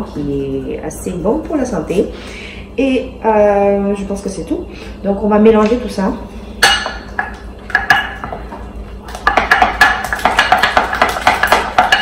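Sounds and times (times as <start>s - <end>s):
spatula knocking in glass bowl: 9.2s - 12.0s.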